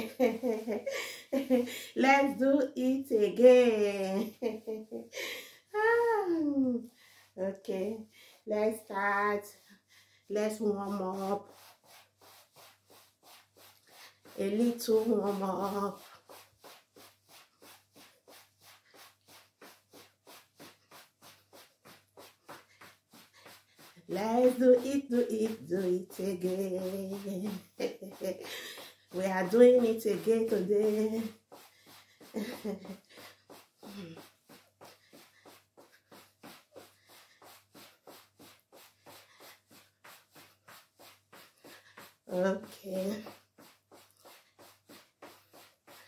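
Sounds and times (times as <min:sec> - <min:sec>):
woman breathing rhythmically: 0:00.8 - 0:02.0, 0:05.1 - 0:05.8, 0:06.8 - 0:07.4, 0:08.0 - 0:08.5, 0:09.4 - 0:10.3, 0:11.4 - 0:14.4, 0:16.0 - 0:24.1, 0:28.1 - 0:29.2, 0:31.3 - 0:42.3, 0:43.2 - 0:46.0.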